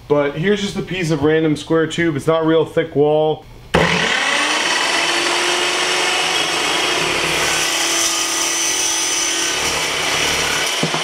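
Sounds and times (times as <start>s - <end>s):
chop saw cutting steel tube: 3.8s - 11.0s.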